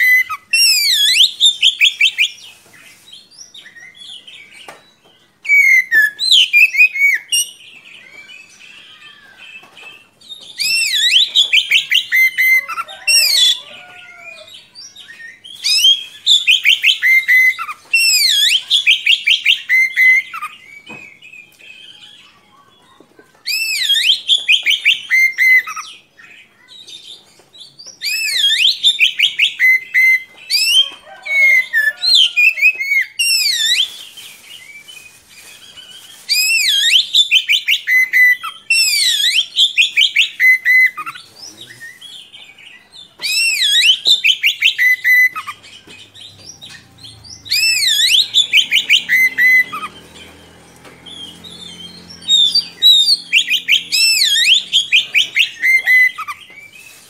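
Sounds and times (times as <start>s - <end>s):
bird whistling song: 0.0s - 2.6s, 3.2s - 22.3s, 23.5s - 26.7s, 27.8s - 57.0s
bird twittering: 34.8s - 57.0s.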